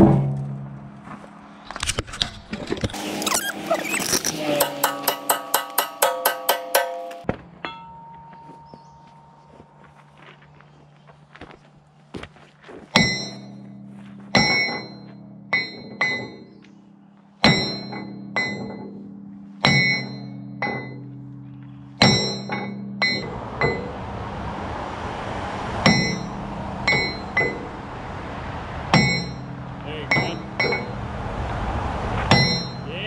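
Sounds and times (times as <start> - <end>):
sledgehammer clanging on steel: 2.1 - 9.6, 12.9 - 16.6, 17.4 - 21.4, 22.0 - 24.0, 26.9 - 27.7, 28.9 - 31.0, 32.3 - 33.0
steady rushing noise: 23.0 - 33.0.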